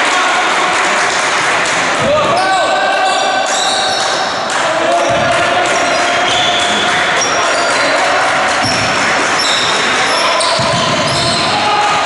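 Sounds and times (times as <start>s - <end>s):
sports hall din: 0.0s - 12.0s
shoes squeaking on court: 8.6s - 11.5s
basketball bouncing on court: 8.6s - 11.8s.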